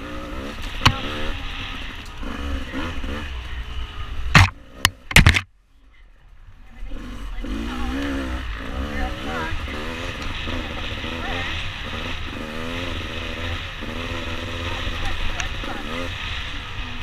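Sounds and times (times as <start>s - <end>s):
dirt bike engine revving: 0.0s - 5.5s, 6.8s - 17.0s
sharp knocks: 4.3s - 5.5s.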